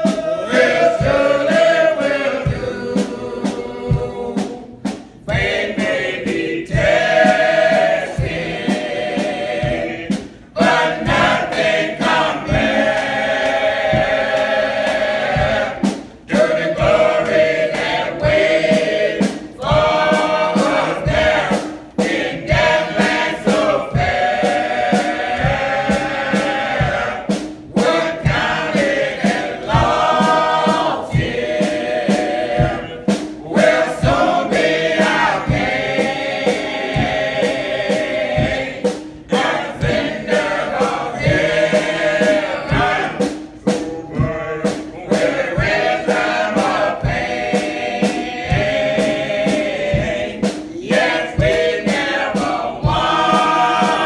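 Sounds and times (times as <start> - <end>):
choir singing gospel: 0.0 - 54.0
low beat: 0.0 - 54.0.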